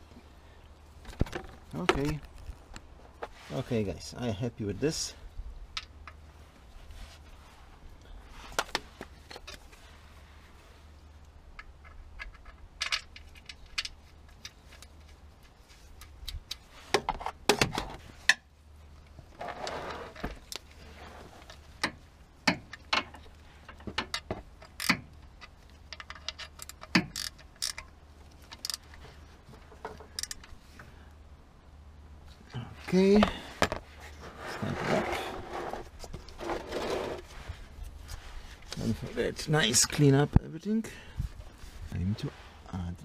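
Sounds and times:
scraping and handling noise: 5.8 - 31.0, 32.2 - 40.1
wrench clicking on metal fastener: 24.6 - 27.8.

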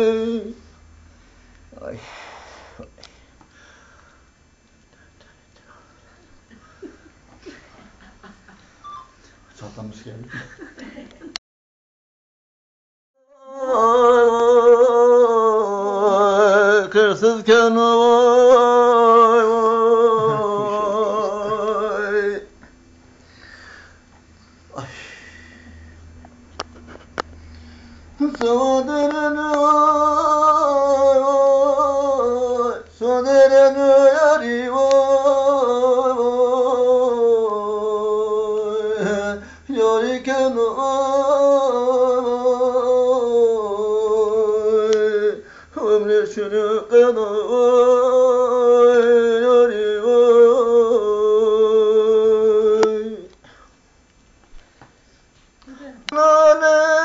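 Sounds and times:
elderly man singing unaccompanied: 0.0 - 0.6, 13.2 - 22.6, 28.2 - 53.3, 56.1 - 57.0.

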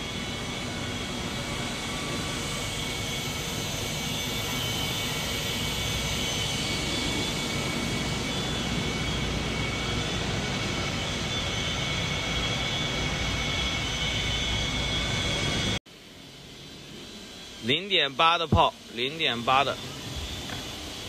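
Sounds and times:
foam-cutting machine whine: 0.0 - 15.8.

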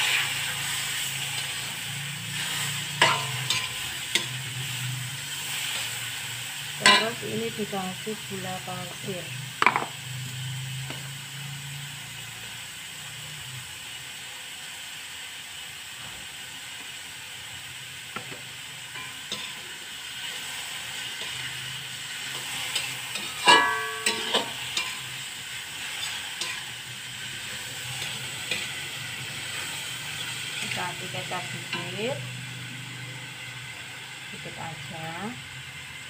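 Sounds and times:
metal spatula scraping wok: 0.0 - 7.6, 18.8 - 32.4
food sizzling in wok: 0.0 - 36.0
spatula clanging on wok: 2.9 - 4.4, 6.8 - 7.3, 18.2 - 19.6, 22.4 - 25.2, 25.9 - 26.8, 31.6 - 32.0.

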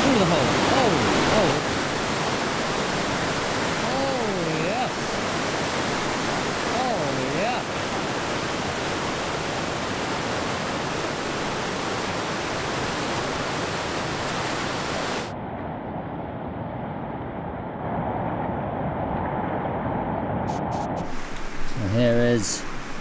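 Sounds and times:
whitewater rapid roaring: 0.0 - 15.3.

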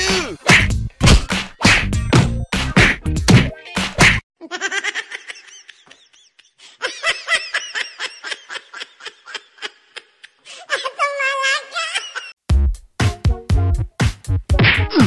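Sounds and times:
high-pitched laughter: 4.4 - 12.4.

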